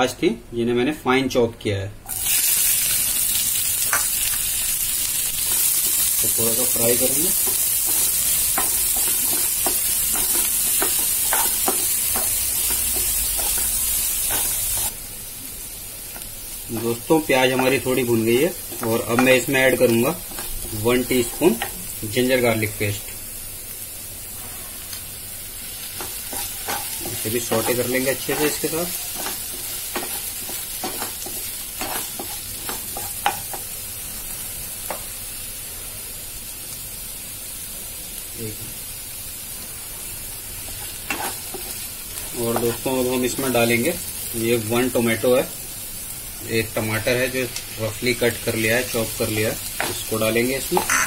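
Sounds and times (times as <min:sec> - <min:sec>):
onions sizzling in hot oil: 0:02.0 - 0:51.0
wooden spatula scraping a pan: 0:07.3 - 0:14.9, 0:26.0 - 0:33.5
wooden spatula scraping pan: 0:26.0 - 0:33.4.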